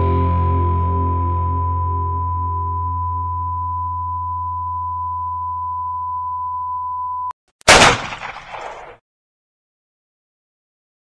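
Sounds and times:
distorted rock guitar chord: 0:00.0 - 0:01.6
high whistle-like tone: 0:01.4 - 0:07.3
gunshot: 0:07.7 - 0:09.0.

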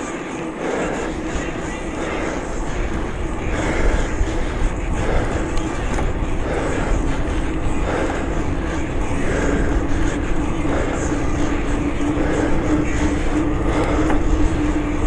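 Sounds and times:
wind rumble on microphone: 0:01.2 - 0:15.0.

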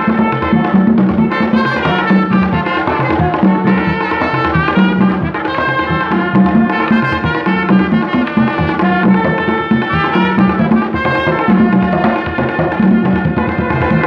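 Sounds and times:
hand drums beating: 0:00.0 - 0:14.0
trumpet melody: 0:00.0 - 0:14.0.

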